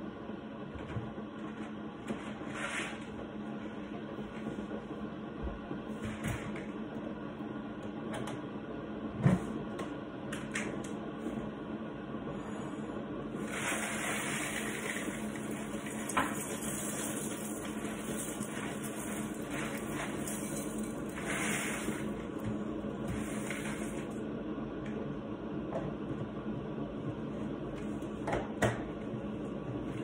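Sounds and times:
low steady hum: 0.0 - 30.0.

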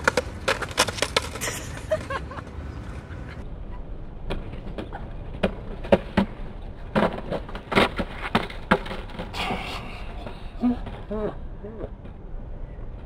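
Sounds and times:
skateboards clacking on concrete: 0.0 - 2.2, 4.3 - 11.1
skateboard wheels rolling: 0.0 - 11.1.

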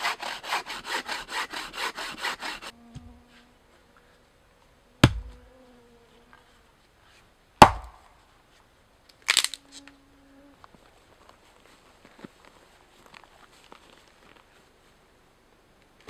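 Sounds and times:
axe splitting log: 5.0 - 5.4, 7.6 - 8.1.

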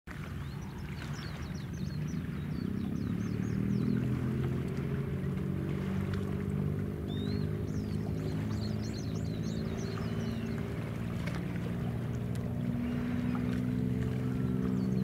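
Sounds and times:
ship engine droning: 0.2 - 15.0
small birds chirping: 0.4 - 4.2, 7.1 - 11.3, 12.8 - 15.0.

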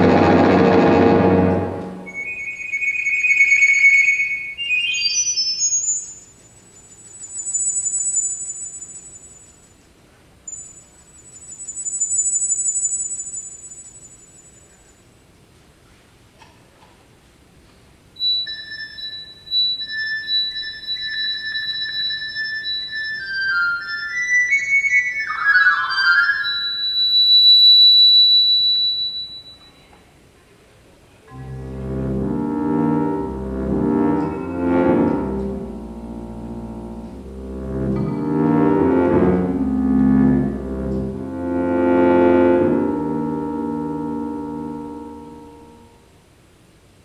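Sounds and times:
high synthesized notes: 0.0 - 6.2, 18.2 - 27.5, 31.3 - 46.1
high thin electronic tone: 0.0 - 9.4, 31.3 - 46.1.

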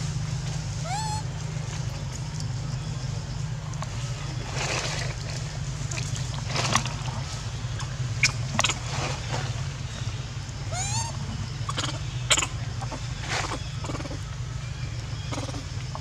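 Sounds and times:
steady low hum: 0.0 - 16.0
rising squeaky call: 0.8 - 1.3, 10.7 - 14.2.

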